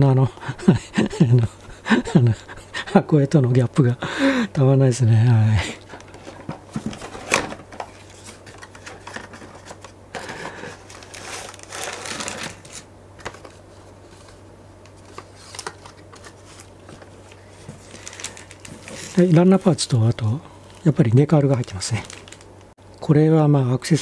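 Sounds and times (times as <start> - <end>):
plastic bags rustling: 5.8 - 13.6, 15.0 - 22.6.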